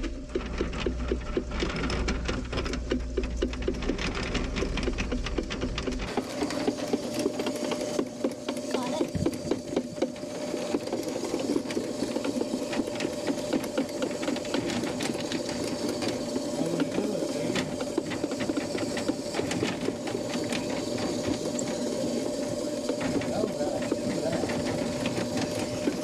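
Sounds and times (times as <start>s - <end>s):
cable rattling against pipe: 0.0s - 26.0s
drain cleaning machine motor whine: 0.0s - 26.0s.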